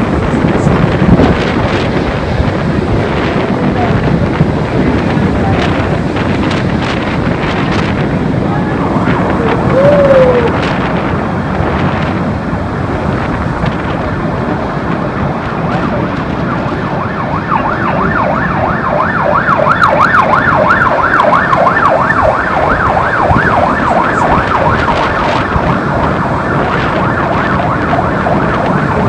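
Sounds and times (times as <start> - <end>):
storm wind and rain: 0.0 - 29.0
siren yelping: 1.5 - 10.8, 15.2 - 29.0.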